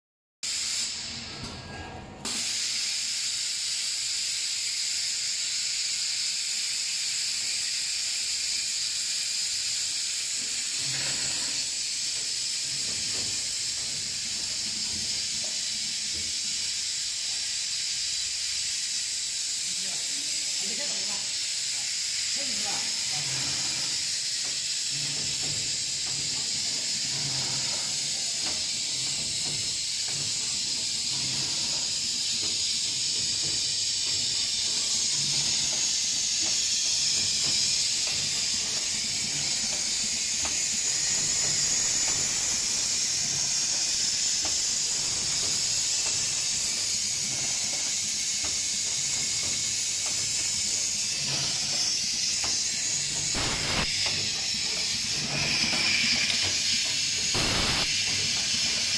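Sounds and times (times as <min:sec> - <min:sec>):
packaging machine hiss: 0:00.4 - 0:58.9.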